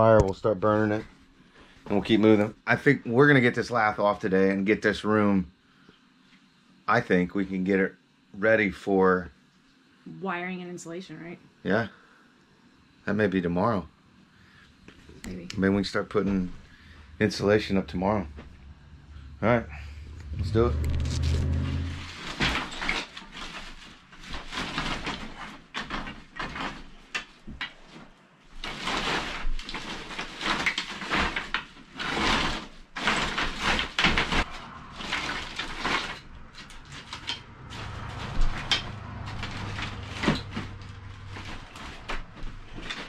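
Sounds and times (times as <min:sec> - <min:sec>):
wooden strips rattling and clacking: 0:20.2 - 0:27.8, 0:28.6 - 0:43.0.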